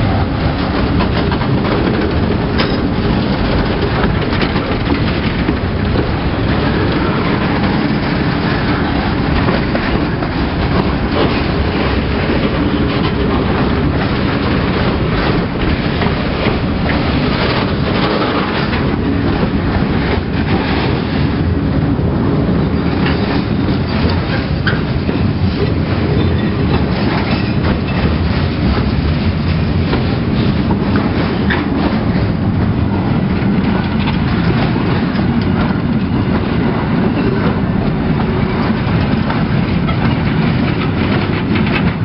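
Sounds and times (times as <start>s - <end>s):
train wheels rumbling on rail: 0.0s - 42.0s.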